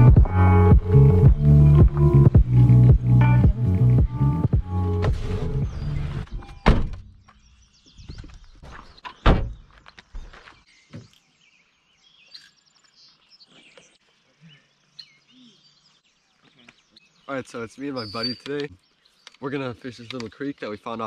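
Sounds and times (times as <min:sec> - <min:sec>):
birds chirping: 0:00.0 - 0:21.0
dull heavy thunks: 0:09.2 - 0:09.7.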